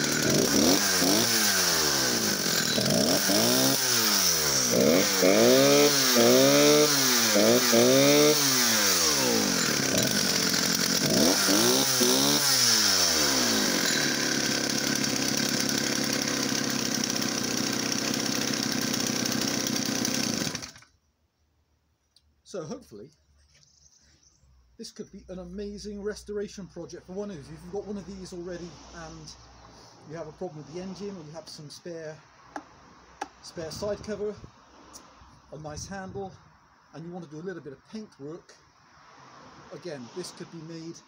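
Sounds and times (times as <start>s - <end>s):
chainsaw engine revving and idling: 0.0s - 20.9s.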